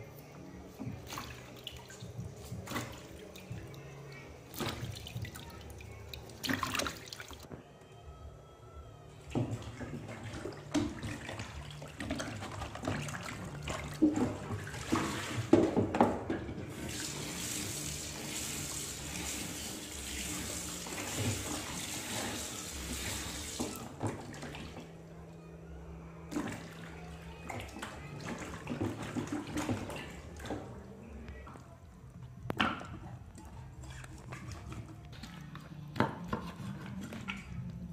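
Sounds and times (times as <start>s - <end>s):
water sloshing in a plastic basin: 0.6s - 7.5s, 9.3s - 17.8s, 20.0s - 25.0s, 26.3s - 31.8s
kitchen tap running: 12.0s - 24.6s.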